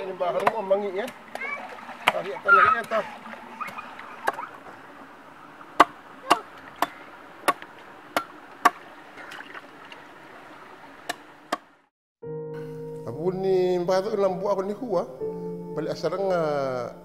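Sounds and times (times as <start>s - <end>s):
sharp chopping strikes: 5.8s - 8.8s.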